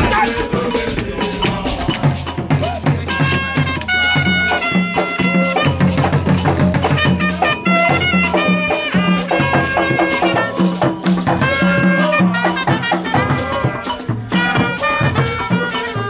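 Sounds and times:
hand drums and percussion: 0.0s - 16.0s
live band music: 0.0s - 16.0s
brass horn held notes: 3.1s - 6.2s, 6.9s - 16.0s.

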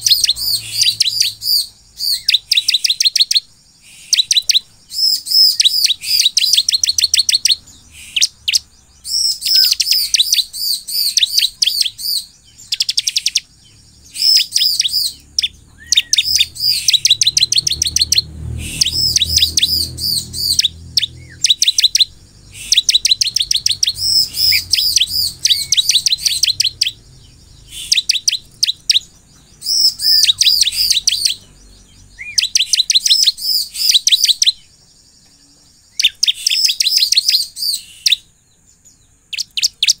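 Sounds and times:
bird rapid high chirps: 0.0s - 40.0s.

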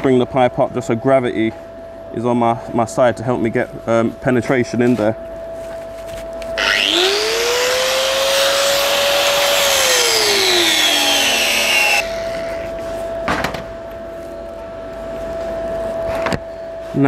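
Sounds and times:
angle grinder grinding steel: 6.6s - 12.8s.

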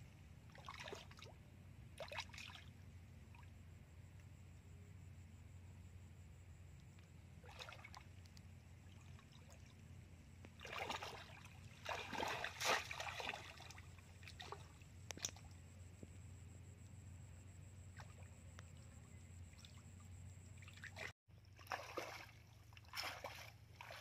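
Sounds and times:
low background hum: 0.0s - 24.0s
muddy water splashing: 0.5s - 1.4s, 2.0s - 3.5s, 7.4s - 15.7s, 19.5s - 24.0s.

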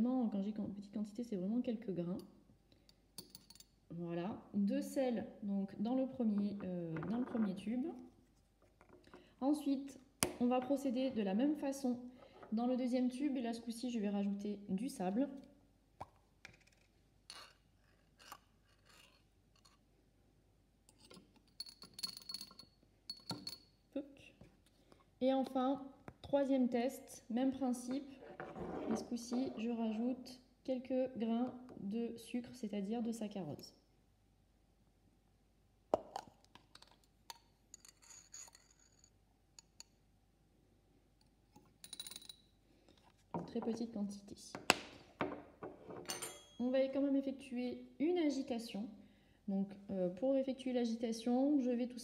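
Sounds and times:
metal spatula scraping glass: 17.3s - 19.8s, 37.8s - 39.1s
glass clinks and scrapes: 20.9s - 23.7s, 37.7s - 39.2s, 45.9s - 46.6s.

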